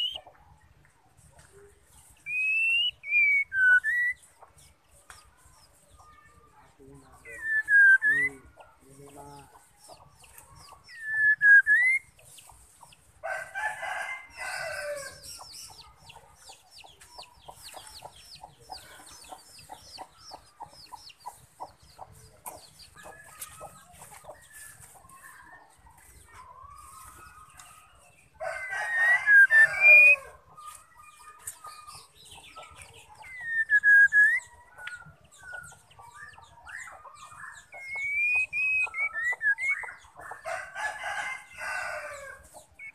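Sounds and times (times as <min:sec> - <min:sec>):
bird whistled notes: 0:02.3 - 0:04.2, 0:07.4 - 0:08.4, 0:10.9 - 0:12.1, 0:33.3 - 0:34.5, 0:37.8 - 0:40.0.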